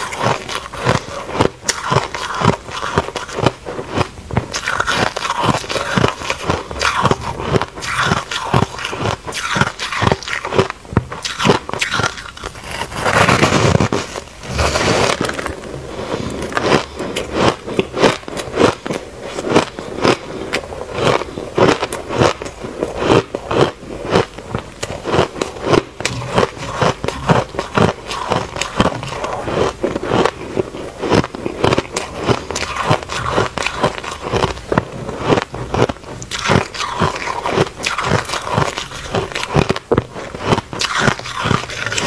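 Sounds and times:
ice crunching while chewed: 0:00.0 - 0:42.0.

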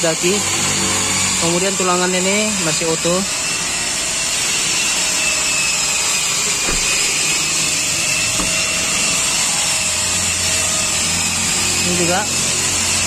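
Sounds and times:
machine whirring: 0:00.1 - 0:13.0.

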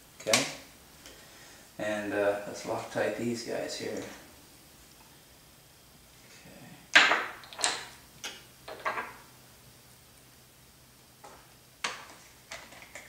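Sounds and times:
tools clattering on a table: 0:08.7 - 0:09.2.

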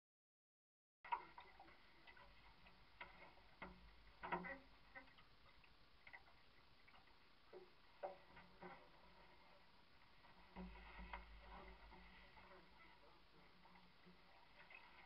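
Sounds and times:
faint irregular ticks and clicks: 0:01.1 - 0:15.0.

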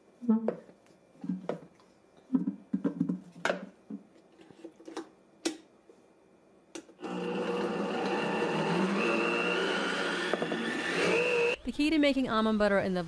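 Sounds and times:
blender motor grinding nuts: 0:07.0 - 0:11.6.

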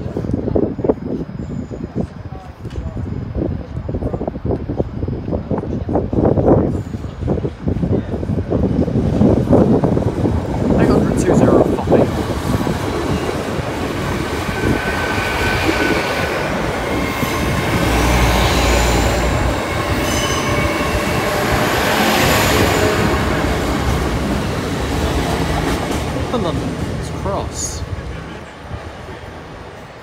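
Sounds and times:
train rolling noise: 0:00.0 - 0:30.0
train wheels squealing on rails: 0:00.1 - 0:04.9, 0:12.6 - 0:23.9.

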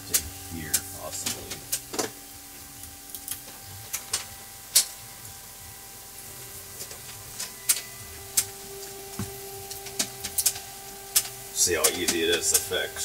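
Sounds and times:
electrical hum: 0:00.0 - 0:13.0
objects being handled and set down: 0:08.5 - 0:11.4.

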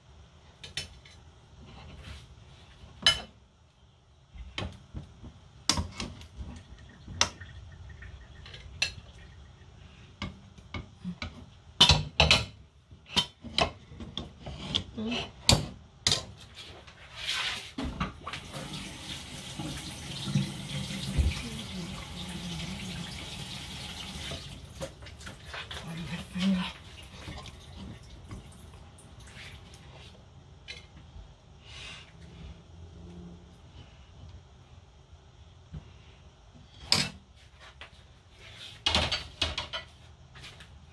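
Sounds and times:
kitchen tap running: 0:18.2 - 0:29.8.

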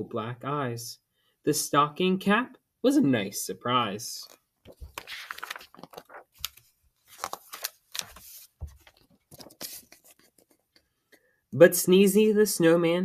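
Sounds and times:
book pages turning: 0:04.2 - 0:10.8.

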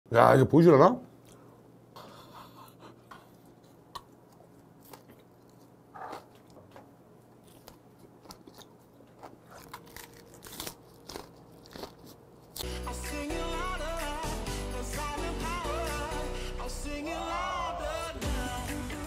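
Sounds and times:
man chewing with wet smacks: 0:02.7 - 0:12.6.

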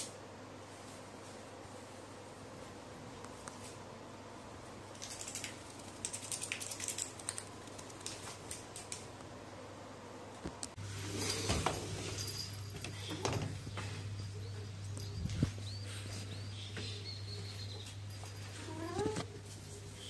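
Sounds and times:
outdoor noise: 0:00.0 - 0:20.0
steady low hum: 0:00.0 - 0:20.0
beak clicks and feather rustles: 0:04.9 - 0:09.1.

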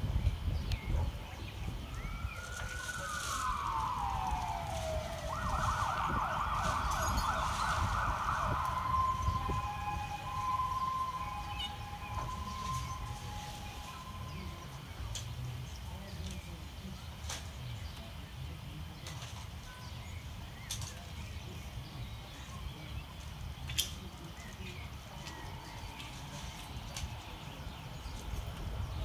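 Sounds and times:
steady low rumble: 0:00.0 - 0:16.8.

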